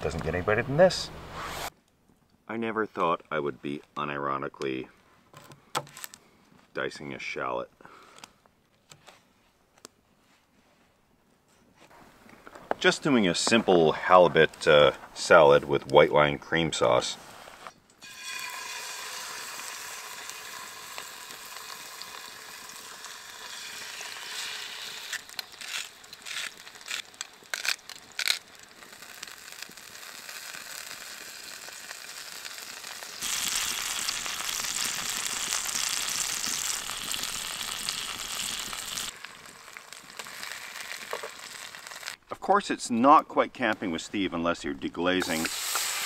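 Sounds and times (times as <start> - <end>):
fish sizzling in a skillet: 18.0 - 42.2, 45.2 - 46.0.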